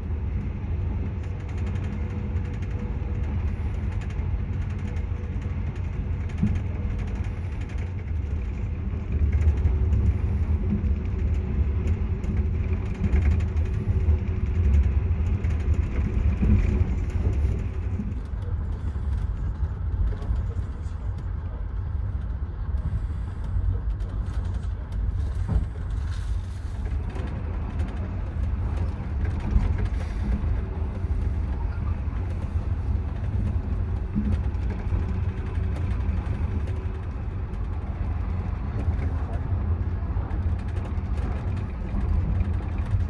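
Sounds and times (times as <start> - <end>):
train rumbling on rails: 0.0 - 43.0.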